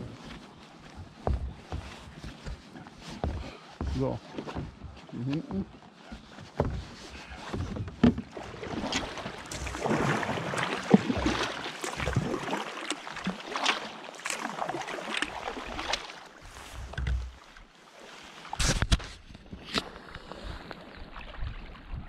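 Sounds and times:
kayak paddle splashing in water: 7.2 - 22.0
wind rumble on microphone: 18.6 - 22.0.

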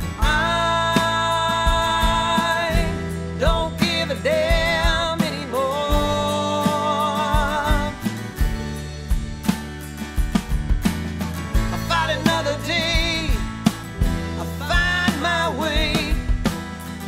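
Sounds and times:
bass and drums: 0.0 - 17.0
instrumental lead melody with vibrato: 6.0 - 15.5.

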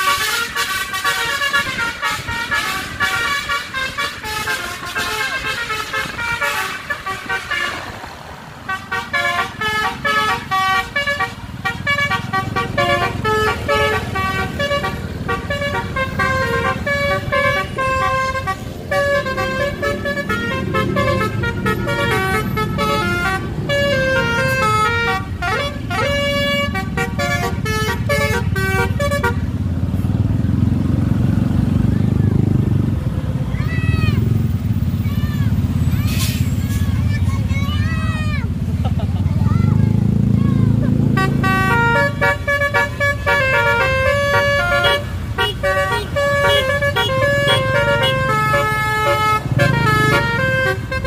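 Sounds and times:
musical horn playing a melody: 0.0 - 29.5, 40.9 - 51.0
bus engines rumbling: 0.0 - 51.0.

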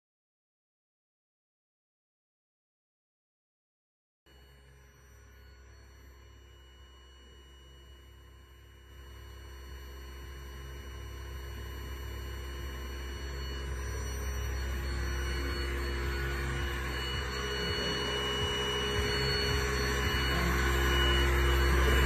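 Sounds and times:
motor humming with high whine: 4.3 - 22.0.

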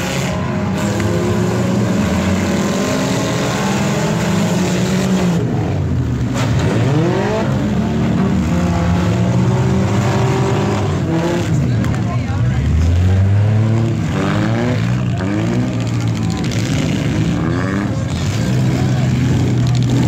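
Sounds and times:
car engine revving: 0.0 - 20.0
car engines running: 0.0 - 20.0.

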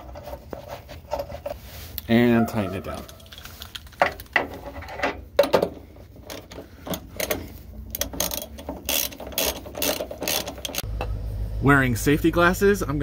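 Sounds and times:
hand ratchet clicking: 6.3 - 10.9.

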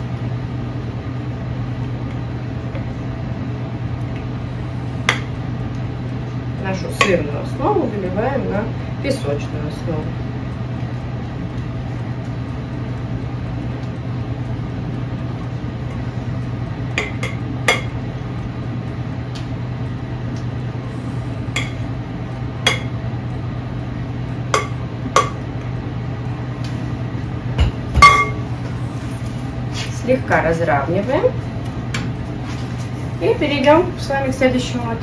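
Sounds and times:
steady low hum: 0.0 - 35.0
bowl clinking against metal: 28.0 - 28.4.

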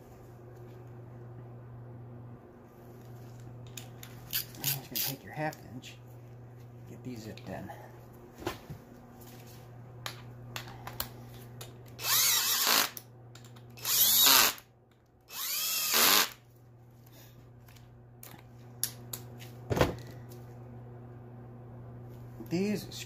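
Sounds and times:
cordless drill motor whirring: 12.0 - 13.0, 13.8 - 14.6, 15.3 - 16.4.

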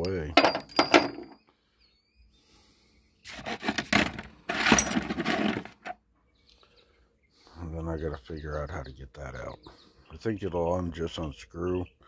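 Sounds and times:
metal pipe fittings clinking: 0.0 - 1.4.

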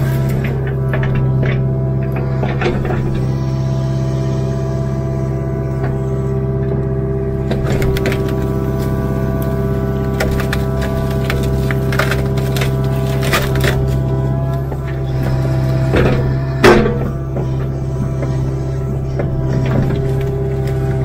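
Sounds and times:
diesel engine running under load: 0.0 - 21.0
brush and small trees snapping: 7.6 - 14.8.

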